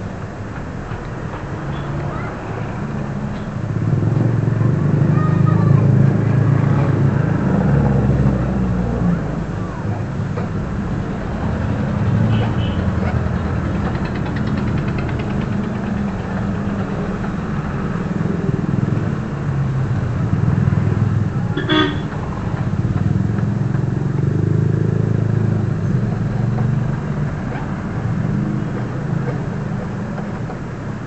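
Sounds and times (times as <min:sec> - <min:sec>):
vehicle engine running: 0:00.0 - 0:31.0
horn toot: 0:21.6 - 0:22.1.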